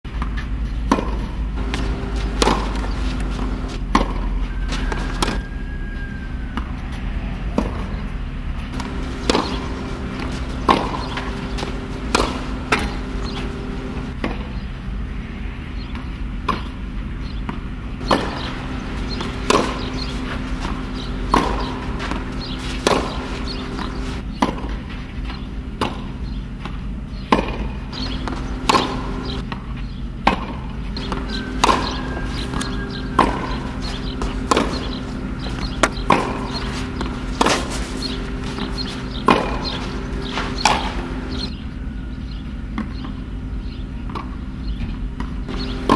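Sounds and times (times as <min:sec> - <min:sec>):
tennis ball bouncing on clay: 0:00.1 - 0:05.4, 0:07.5 - 0:07.9, 0:08.7 - 0:14.6, 0:17.4 - 0:41.6, 0:45.2 - 0:45.9
steady low hum: 0:00.1 - 0:45.9
tennis ball struck by racket: 0:00.2 - 0:05.4, 0:08.7 - 0:14.5, 0:17.5 - 0:24.8, 0:25.8 - 0:29.6, 0:30.2 - 0:41.6, 0:45.5 - 0:45.9.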